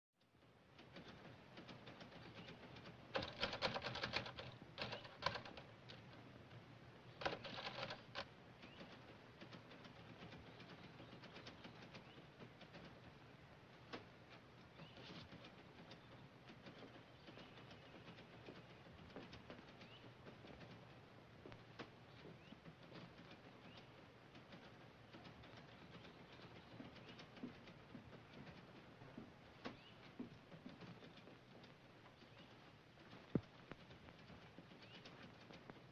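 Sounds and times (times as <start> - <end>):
soft ticks and low knocks: 0.2 - 35.9
manual typewriter keystrokes: 3.1 - 5.6, 7.2 - 8.3
bird chirps: 14.7 - 15.2.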